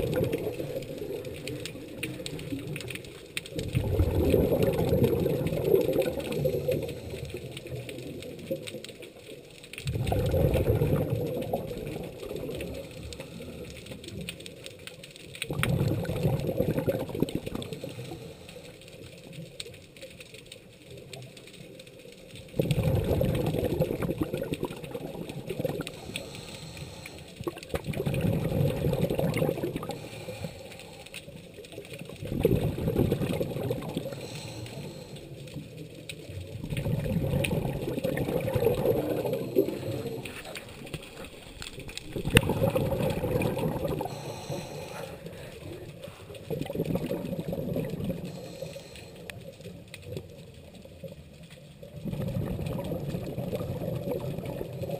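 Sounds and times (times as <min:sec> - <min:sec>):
bubbles gurgling underwater: 0:00.0 - 0:19.6, 0:22.3 - 0:26.8, 0:27.4 - 0:30.5, 0:31.4 - 0:51.1, 0:51.7 - 0:54.9
faint crackling: 0:00.0 - 0:54.9
diver breathing through regulator: 0:25.8 - 0:27.4, 0:29.8 - 0:31.2, 0:34.0 - 0:35.3, 0:42.4 - 0:46.4, 0:48.1 - 0:49.3.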